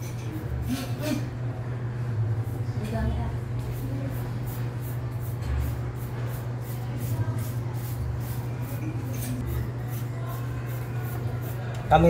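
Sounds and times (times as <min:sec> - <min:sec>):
steady low hum: 0:00.0 - 0:12.0
toothbrush scrubbing metal fins: 0:03.7 - 0:11.8.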